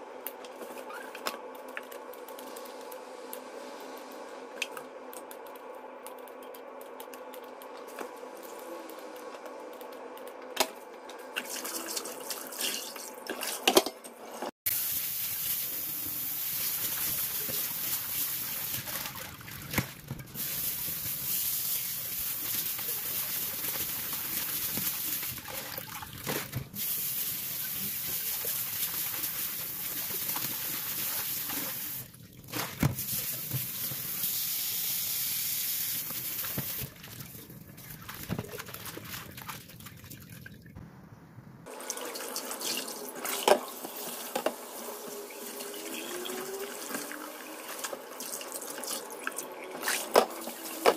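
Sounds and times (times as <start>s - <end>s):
hands swishing leaves in water: 16.6s - 26.6s, 36.2s - 40.4s.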